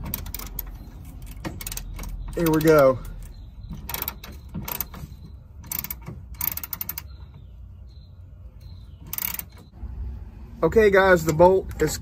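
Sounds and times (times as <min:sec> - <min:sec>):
hand ratchet clicking: 0:00.0 - 0:05.0, 0:05.6 - 0:07.1, 0:09.1 - 0:09.7.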